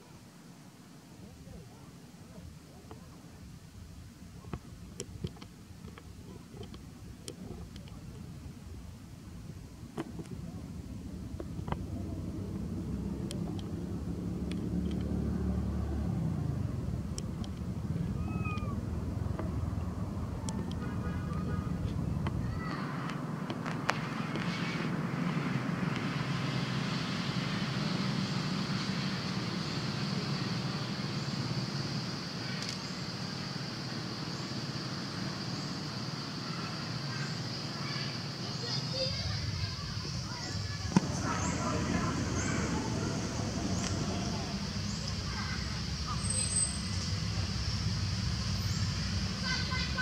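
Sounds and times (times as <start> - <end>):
steady low rumble: 2.4 - 35.4, 39.2 - 50.0
high even hiss: 15.4 - 50.0
low rumble: 39.8 - 46.2.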